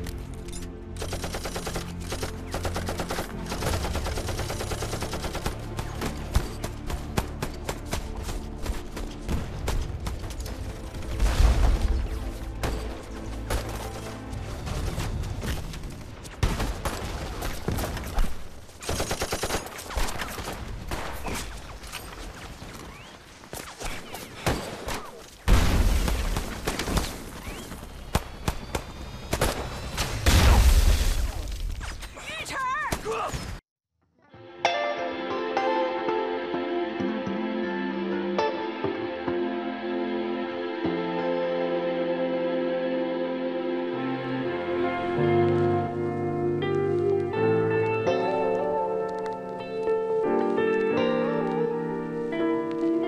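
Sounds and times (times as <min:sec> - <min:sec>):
dramatic music score: 0:00.0 - 0:22.5, 0:25.4 - 0:31.9, 0:34.4 - 0:53.0
rifle and machine-gun shots: 0:01.0 - 0:13.8, 0:16.3 - 0:29.8.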